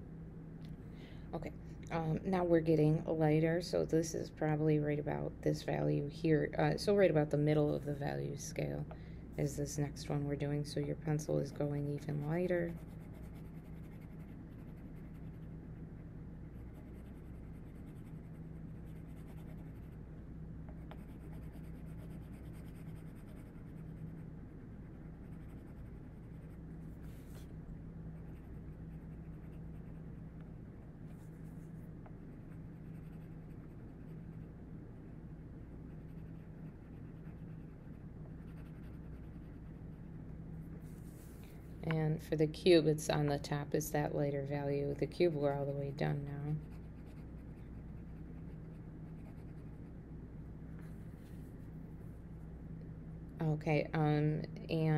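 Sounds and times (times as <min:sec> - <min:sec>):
low hum: 0:00.0 - 0:54.9
pencil scratching on paper: 0:11.5 - 0:15.6, 0:16.5 - 0:20.0, 0:20.9 - 0:24.2, 0:32.4 - 0:34.4, 0:35.9 - 0:40.0.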